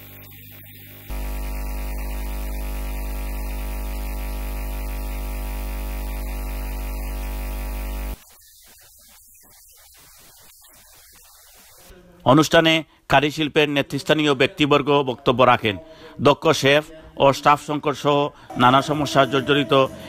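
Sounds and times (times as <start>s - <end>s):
electrical mains hum: 0.0s - 8.2s.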